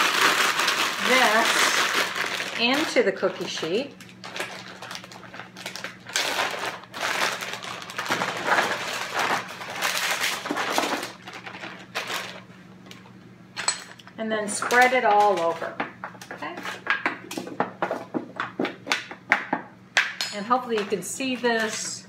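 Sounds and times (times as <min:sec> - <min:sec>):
plastic bag crinkling: 0:00.0 - 0:13.1.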